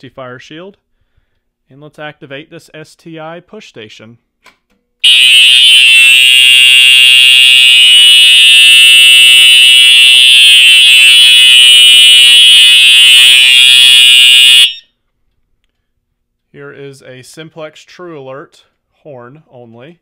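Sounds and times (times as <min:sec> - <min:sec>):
fire alarm horn tone: 0:05.0 - 0:14.9.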